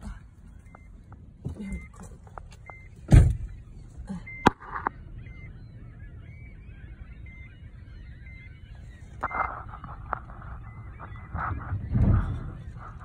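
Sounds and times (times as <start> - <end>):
car low rumble: 0.0 - 13.0
gulls calling: 0.0 - 13.0
dull thump: 3.1 - 3.5.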